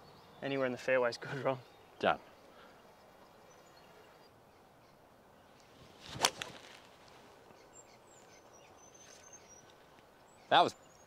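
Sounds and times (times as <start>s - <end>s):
faint bird chirps: 0.0s - 11.0s
golf club striking ball: 6.0s - 6.9s.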